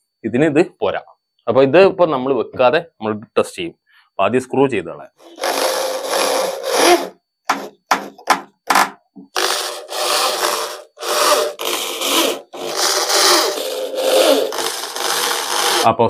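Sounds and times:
electric drill motor whining: 0:05.2 - 0:08.2, 0:09.3 - 0:15.9.

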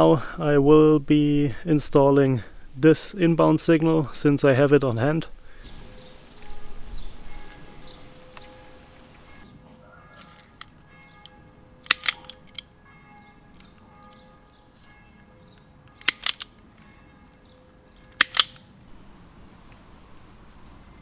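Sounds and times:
wire stripper clicking: 0:18.2 - 0:18.6.

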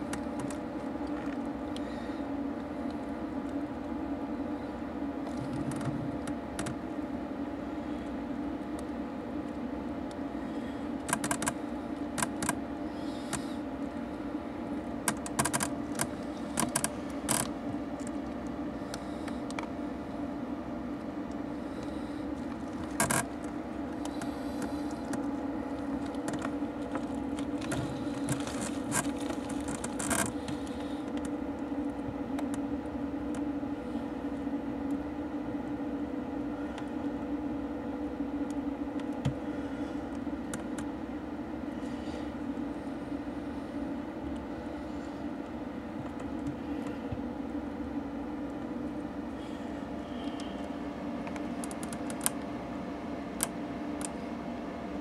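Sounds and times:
low mechanical hum: 0:00.0 - 0:55.0
sharp clicks and knocks: 0:15.0 - 0:18.4.

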